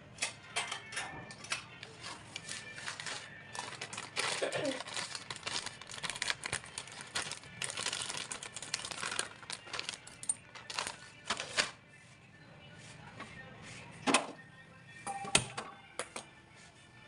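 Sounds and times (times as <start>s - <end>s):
plastic packet crinkling: 2.7s - 11.7s.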